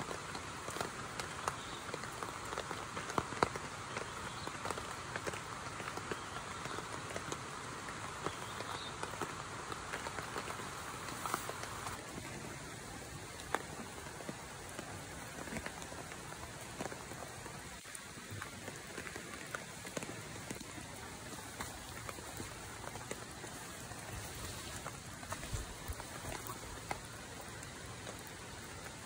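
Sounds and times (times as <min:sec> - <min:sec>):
rain falling: 0:00.0 - 0:29.0
raindrops ticking: 0:00.0 - 0:29.0.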